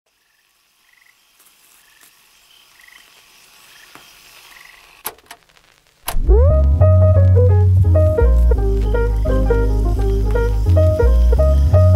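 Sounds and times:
frogs calling: 0.1s - 5.0s
faint hiss: 0.1s - 11.9s
higher chirps: 6.8s - 11.9s.

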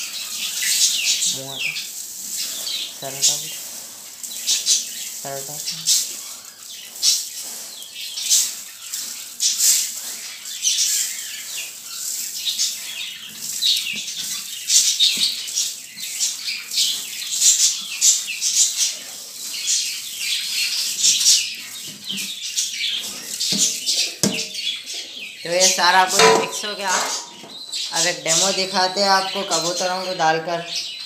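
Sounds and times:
grain pouring into plastic bucket: 0.0s - 24.0s.

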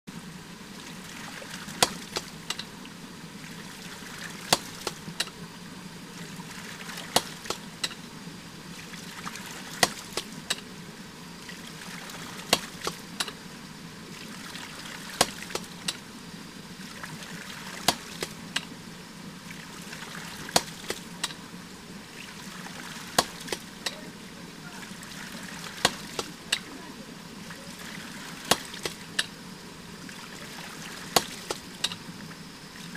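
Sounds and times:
water rushing: 0.1s - 32.9s
water spurting: 0.1s - 32.9s.

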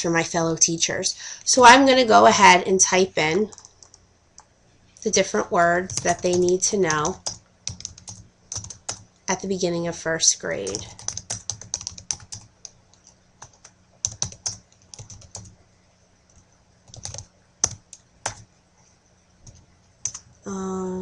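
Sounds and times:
computer keyboard typing: 3.4s - 4.5s, 5.8s - 9.1s, 10.6s - 15.6s, 16.3s - 18.5s, 19.4s - 20.3s.

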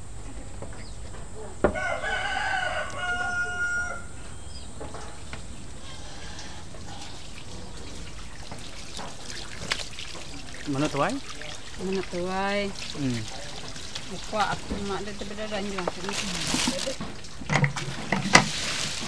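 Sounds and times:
rooster crowing: 1.7s - 4.6s.

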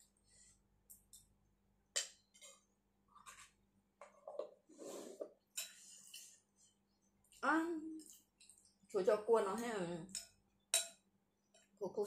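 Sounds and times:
soft chewing: 5.6s - 9.0s.

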